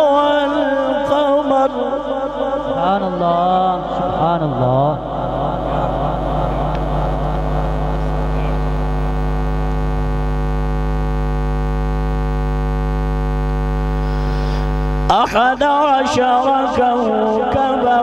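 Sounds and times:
person reciting through loudspeaker: 0.0 - 8.7, 14.2 - 18.0
low mains hum: 4.4 - 15.2.

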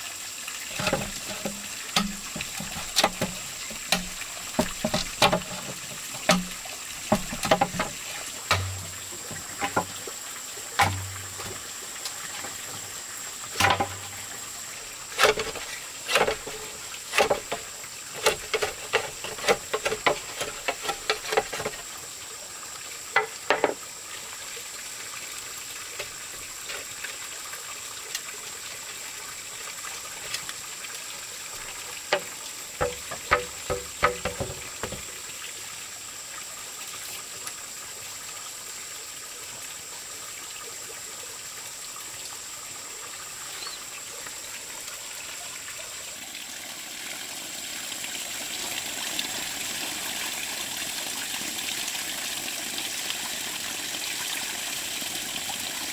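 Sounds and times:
water trickling into pond: 0.0 - 55.9
chisel knocking on bamboo: 0.8 - 9.9, 23.2 - 23.8, 32.1 - 35.1.

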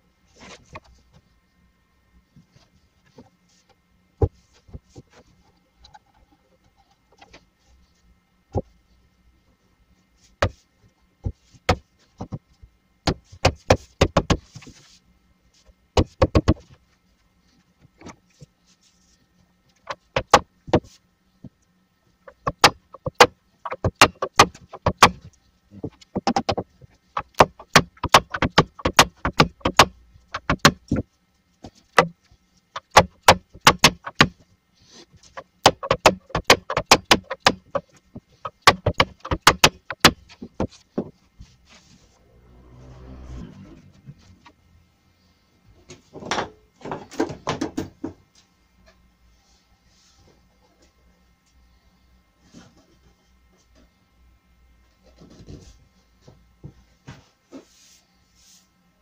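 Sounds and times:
hammer knocking on wooden block: 22.3 - 25.2, 25.8 - 31.0, 32.8 - 34.3, 35.6 - 41.1.

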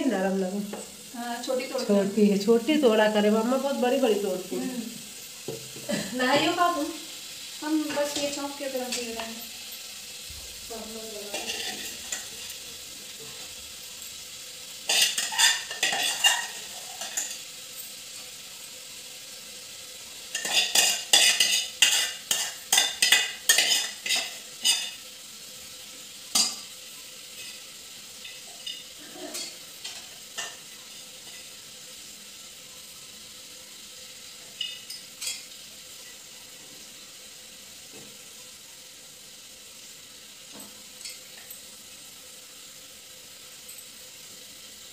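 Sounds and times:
low sizzle: 0.0 - 44.9
metal spoon scraping pan: 11.2 - 13.5, 14.8 - 18.1, 20.3 - 25.0, 28.2 - 31.5.

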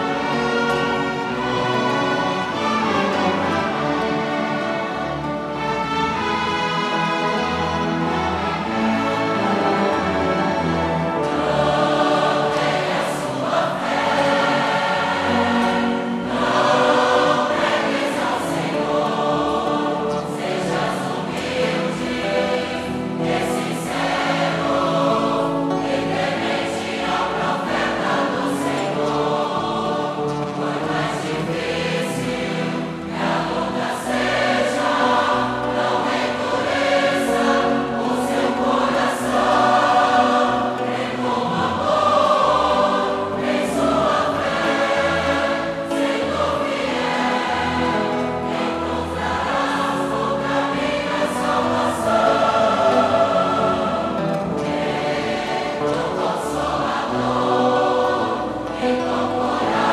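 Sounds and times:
wind band of saxophones and brass: 0.0 - 12.2
choir singing a hymn: 0.0 - 59.9.

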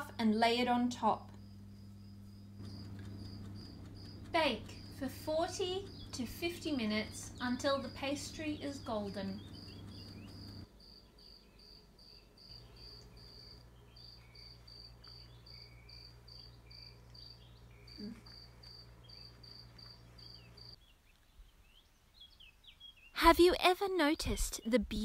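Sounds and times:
low steady hum: 0.0 - 20.8
faint insect chirping: 0.9 - 20.8.

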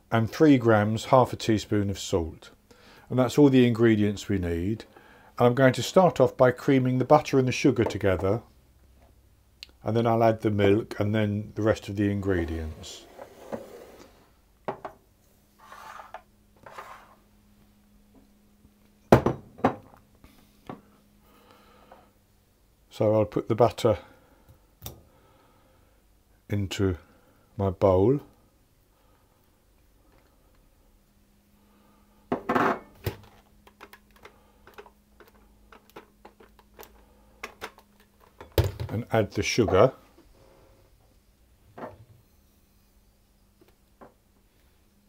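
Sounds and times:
faint steady hum: 0.0 - 45.0
rustling scrapes: 12.4 - 14.3, 15.5 - 17.3.

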